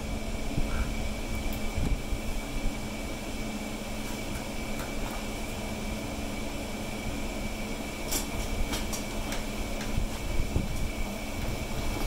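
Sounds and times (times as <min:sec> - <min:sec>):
mechanical hum with hiss: 0:00.0 - 0:12.0.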